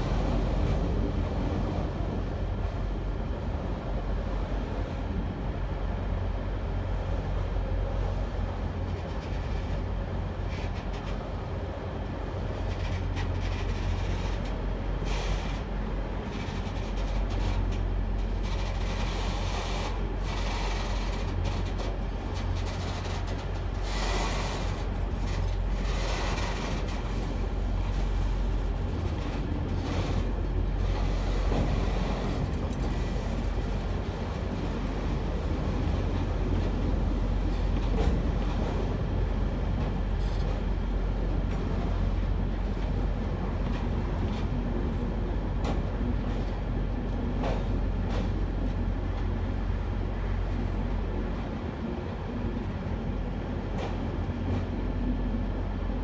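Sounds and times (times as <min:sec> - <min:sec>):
low train rumble: 0:00.0 - 0:56.0
train wheels clattering over rails: 0:12.6 - 0:28.2.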